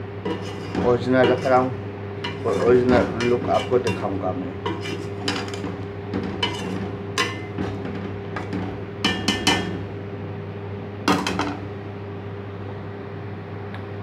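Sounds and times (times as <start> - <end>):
steady low hum: 0.0 - 14.0
metal ladle knocking on pot: 5.3 - 9.8.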